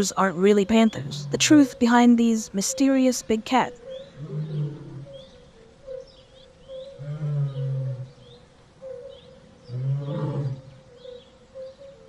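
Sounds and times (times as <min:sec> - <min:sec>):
high chirping calls: 0:00.0 - 0:12.0
big cat growling: 0:04.2 - 0:05.3, 0:06.9 - 0:08.3, 0:09.6 - 0:10.8.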